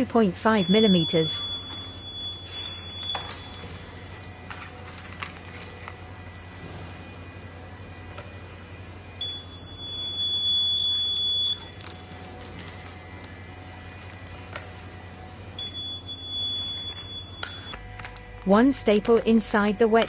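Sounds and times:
high-pitched alarm beep: 0:00.2 - 0:04.1, 0:09.2 - 0:11.8, 0:15.6 - 0:17.8.

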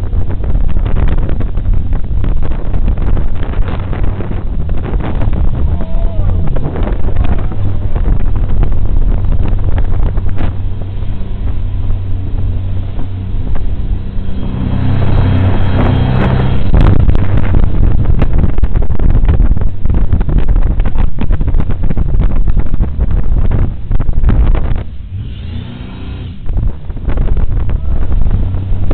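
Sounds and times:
rushing water: 0:00.0 - 0:22.7
boat engine running: 0:00.0 - 0:28.9
wind on microphone: 0:00.0 - 0:28.9.

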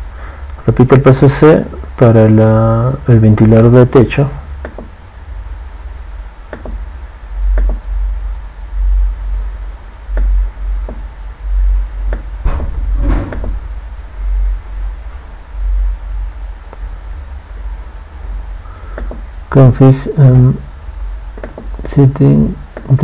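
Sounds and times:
low rumble on microphone: 0:00.0 - 0:23.0
computer mouse clicks: 0:06.5 - 0:06.8, 0:07.6 - 0:07.8, 0:18.9 - 0:19.2.

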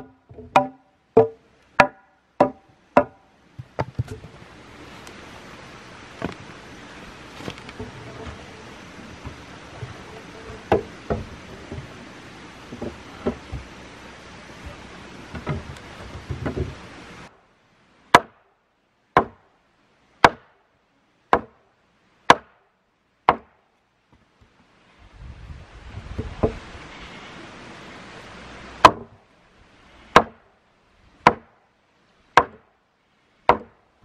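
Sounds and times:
wood chopping strikes: 0:00.0 - 0:04.3, 0:09.2 - 0:11.8, 0:18.1 - 0:18.5, 0:19.2 - 0:19.5, 0:20.2 - 0:20.6, 0:21.3 - 0:21.6, 0:22.3 - 0:22.6, 0:23.3 - 0:23.6, 0:28.8 - 0:29.2, 0:30.1 - 0:30.4, 0:31.2 - 0:31.6, 0:32.4 - 0:32.7, 0:33.5 - 0:33.8
outdoor hiss: 0:00.0 - 0:34.0
scattered knocks: 0:00.3 - 0:04.3, 0:09.2 - 0:11.9.

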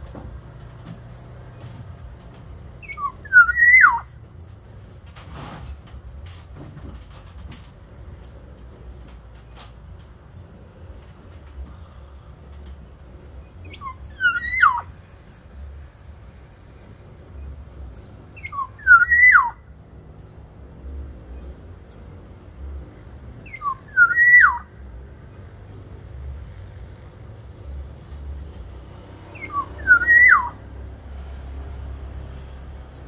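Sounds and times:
bird whistling song: 0:02.4 - 0:04.1, 0:13.2 - 0:15.4, 0:17.9 - 0:19.6, 0:23.4 - 0:24.7, 0:29.3 - 0:30.6.

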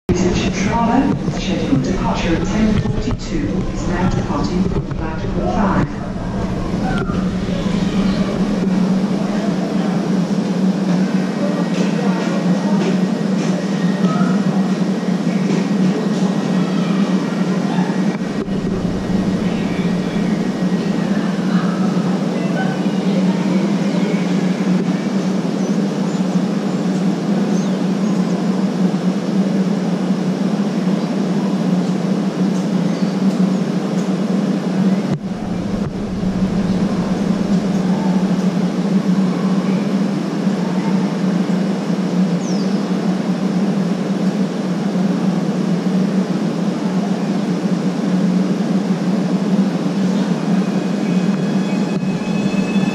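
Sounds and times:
train equipment humming: 0:00.0 - 0:13.5, 0:15.8 - 0:24.5, 0:34.8 - 0:42.2, 0:50.2 - 0:52.9
brief low rumble: 0:00.1 - 0:10.6, 0:18.1 - 0:21.9, 0:35.1 - 0:39.5.

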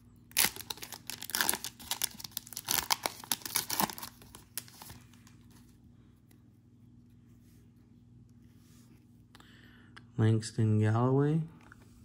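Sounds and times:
wrapper tearing and crinkling: 0:00.3 - 0:05.2.

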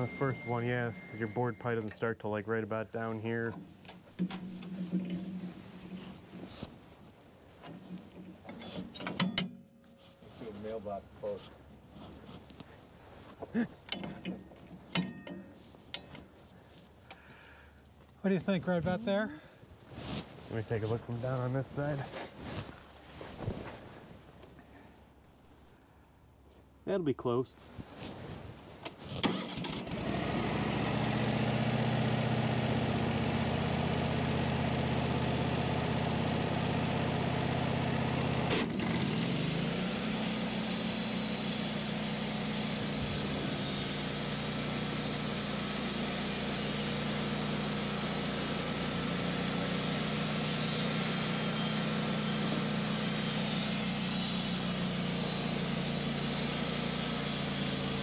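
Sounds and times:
sawmill engine running: 0:00.0 - 0:01.9, 0:29.3 - 0:58.0.

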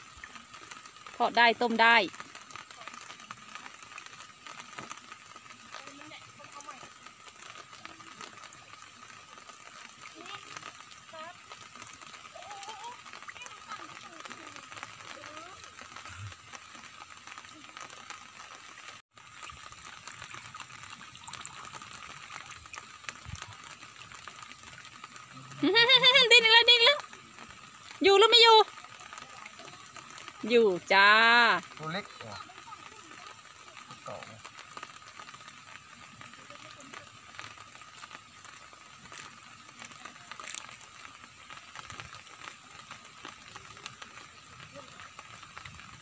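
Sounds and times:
water trickling and lapping: 0:00.0 - 0:46.0
small ticks: 0:31.6 - 0:46.0.

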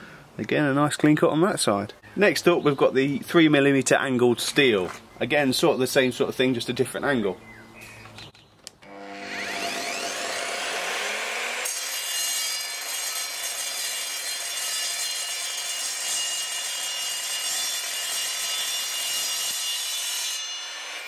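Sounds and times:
saw motor spinning up: 0:08.8 - 0:12.9
saw blade grinding steel: 0:08.9 - 0:21.0.

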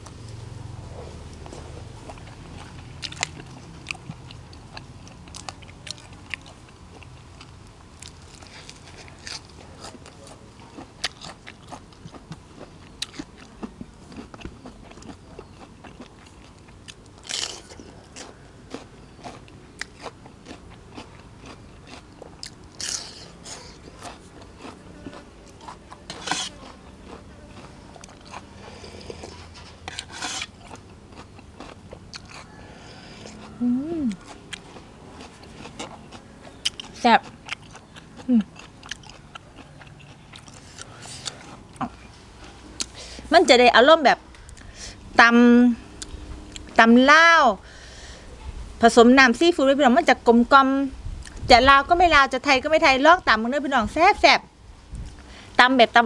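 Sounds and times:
wet chewing: 0:01.0 - 0:43.2
crunchy bites: 0:10.8 - 0:32.5.

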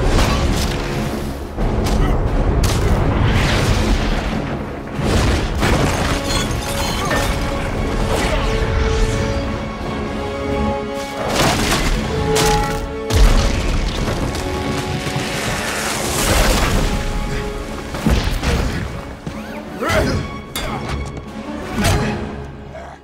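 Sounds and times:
orchestral film music: 0:00.0 - 0:23.0.

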